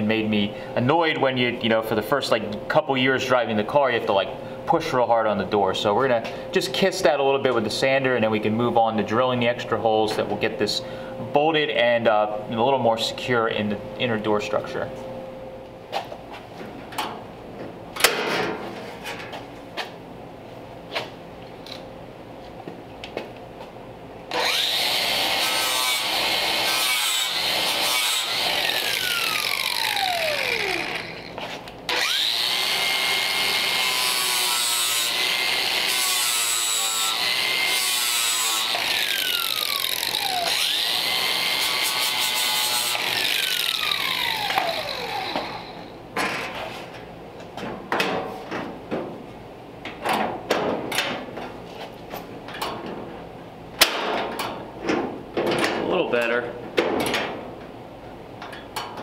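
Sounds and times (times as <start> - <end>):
power sander grinding steel: 24.3 - 45.9.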